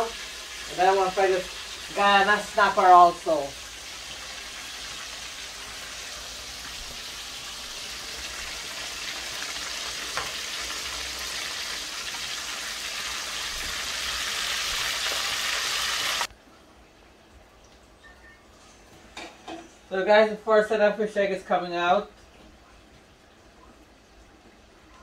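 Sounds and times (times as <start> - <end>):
food sizzling in hot oil: 0.0 - 16.3.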